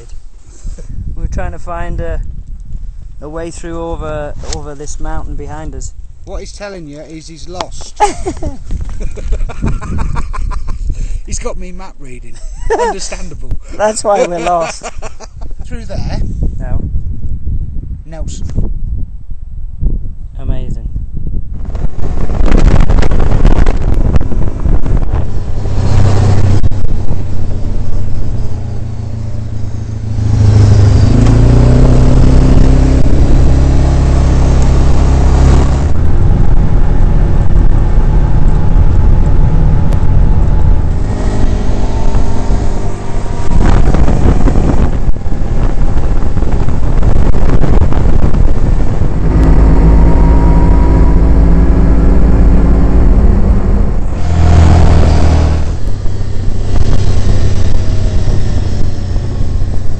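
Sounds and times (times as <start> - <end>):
wind rush on microphone: 0.0 - 59.9
quad bike engine revving: 28.4 - 59.9.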